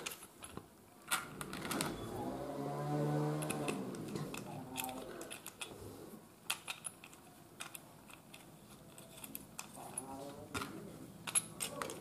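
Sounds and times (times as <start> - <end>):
metal screws clicking on table: 3.4 - 5.7.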